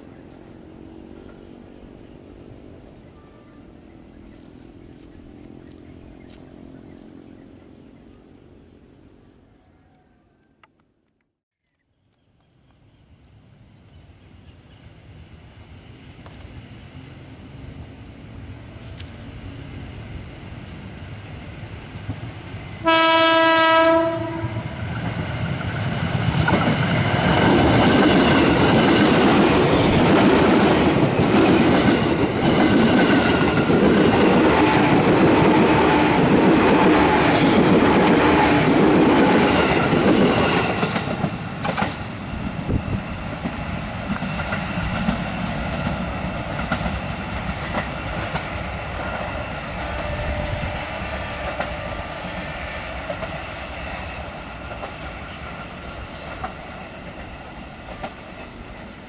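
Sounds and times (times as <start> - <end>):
train whine: 0.0 - 10.8, 13.0 - 59.0
train horn blast: 22.8 - 24.8, 49.4 - 52.5
train wheels clickety-clack: 23.9 - 59.0.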